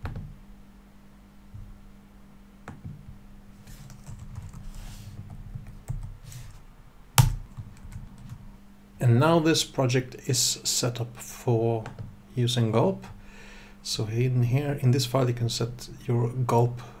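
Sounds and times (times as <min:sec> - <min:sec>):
steady low hum: 0:00.0 - 0:17.0
keyboard typing: 0:03.8 - 0:04.7, 0:07.2 - 0:08.4.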